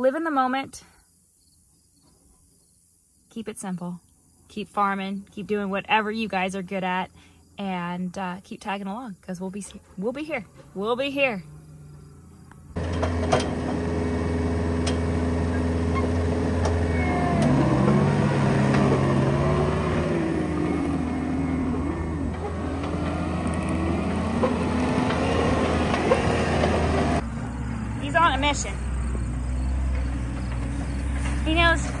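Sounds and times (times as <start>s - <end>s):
loader diesel engine running: 10.5s - 32.0s.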